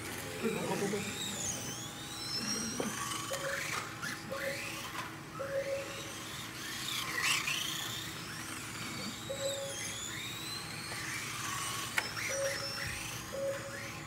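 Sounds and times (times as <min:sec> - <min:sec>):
electric motors of toy cars whining: 0:00.0 - 0:14.0
short mid-pitched beeps: 0:09.3 - 0:09.9, 0:12.3 - 0:13.8.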